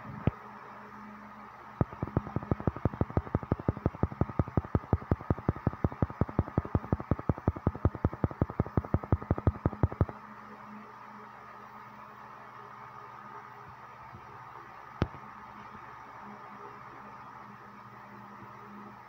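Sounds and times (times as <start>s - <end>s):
rapid even clicking: 1.8s - 10.1s.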